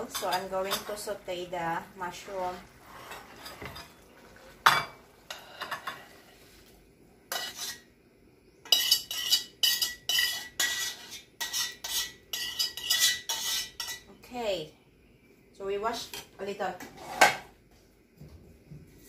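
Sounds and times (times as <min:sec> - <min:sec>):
utensil scraping metal pan: 0:02.4 - 0:04.0, 0:07.3 - 0:07.8, 0:08.7 - 0:14.1, 0:16.9 - 0:17.5
utensil clinking on pan: 0:08.7 - 0:14.0.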